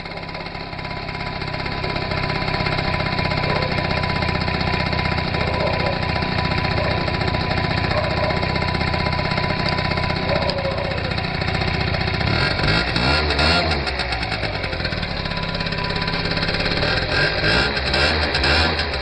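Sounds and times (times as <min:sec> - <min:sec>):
scooter engine idling: 0:00.0 - 0:19.0
scooter engine revving: 0:00.0 - 0:19.0.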